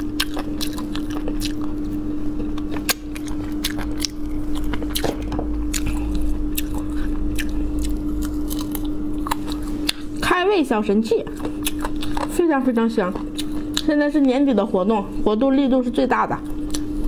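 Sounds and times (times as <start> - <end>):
gnawing and chewing bones: 0.0 - 10.2, 11.3 - 14.0
steady low hum: 0.0 - 17.0.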